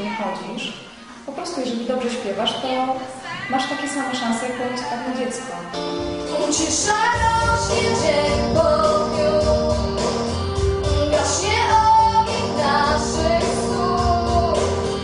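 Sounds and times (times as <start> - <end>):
girl singing into microphone: 5.7 - 10.1, 10.8 - 15.0
instrumental accompaniment: 5.7 - 15.0.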